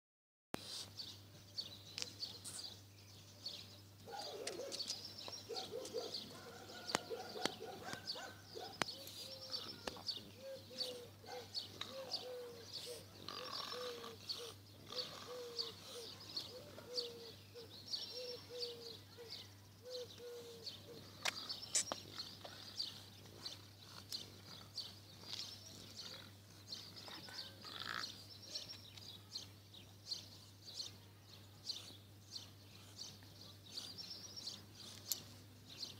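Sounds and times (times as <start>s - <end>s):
songbirds chirping: 0.6s - 35.9s
short low bird calls: 4.1s - 23.1s.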